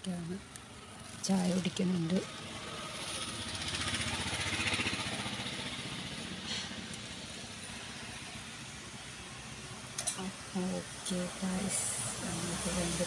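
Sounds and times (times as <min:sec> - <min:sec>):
vehicle engine running: 0:00.9 - 0:08.9.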